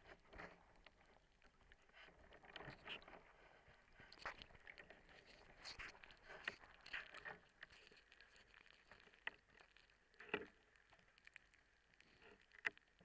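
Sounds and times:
underwater clicks and knocks: 8.9 - 11.0.

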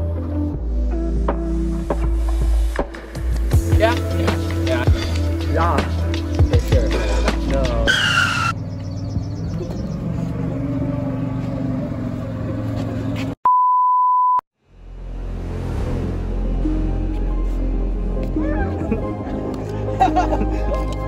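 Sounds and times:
background music: 0.0 - 8.5, 14.7 - 21.0
steady beep tone: 13.4 - 14.4.

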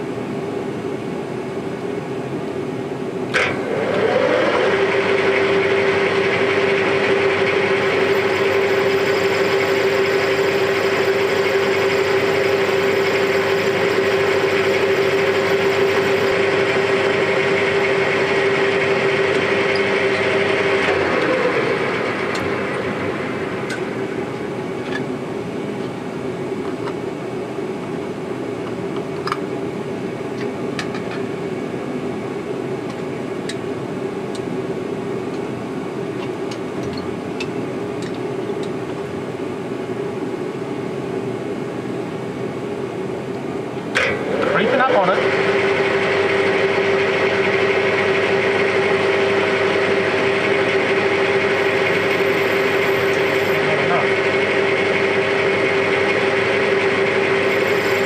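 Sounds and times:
workshop hum: 0.0 - 58.0
metal lathe whining: 3.4 - 25.2, 44.0 - 58.0.

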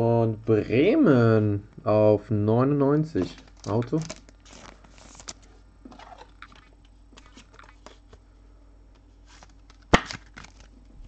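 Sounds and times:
trading cards rustling: 3.2 - 8.2, 9.2 - 10.8.

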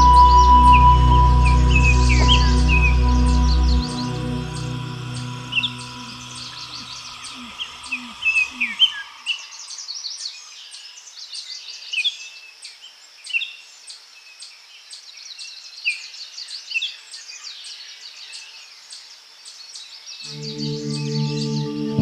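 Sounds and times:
soft ambient music: 0.0 - 9.0, 20.3 - 22.0.

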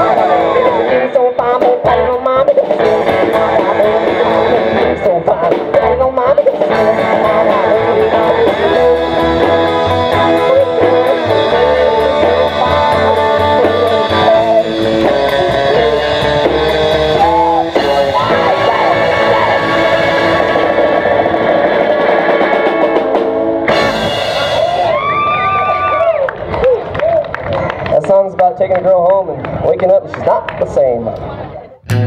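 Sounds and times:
drum kit: 0.0 - 25.6
electric guitar with bent notes: 0.0 - 28.0, 29.3 - 32.0
upright double bass: 1.8 - 20.7.

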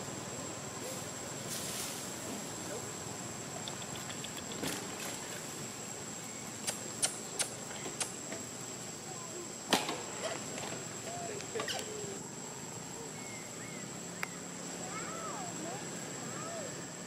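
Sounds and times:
faint squeaky calls: 10.1 - 16.8.

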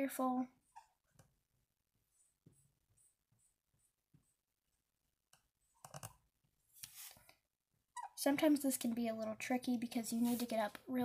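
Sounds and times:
marker scratching on plastic: 10.1 - 10.8.

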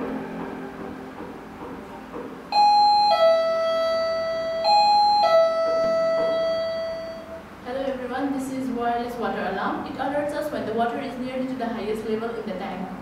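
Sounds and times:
two-tone ding-dong chime: 2.5 - 7.3.

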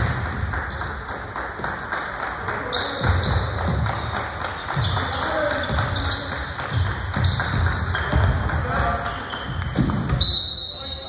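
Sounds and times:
sneakers squeaking: 0.0 - 1.6, 2.4 - 11.0
voices in the background: 0.7 - 11.0
basketball bouncing on floor: 3.0 - 10.2.

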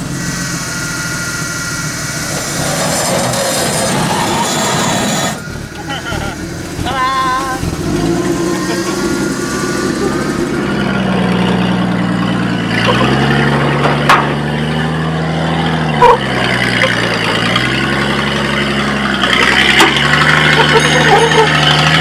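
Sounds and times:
truck engine running under load: 0.0 - 22.0
sharp knocks: 13.8 - 14.4.

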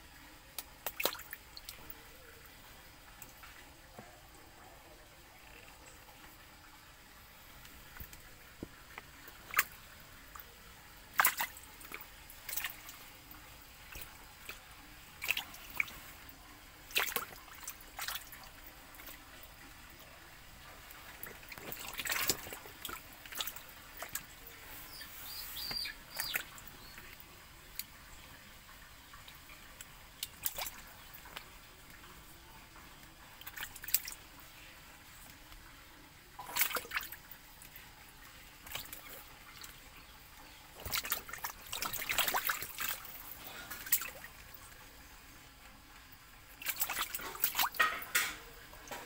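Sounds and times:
faint steady hiss: 0.0 - 49.0
frogs splashing in water: 0.5 - 2.2, 7.5 - 32.4, 33.2 - 34.7, 36.3 - 44.7, 46.4 - 49.0.

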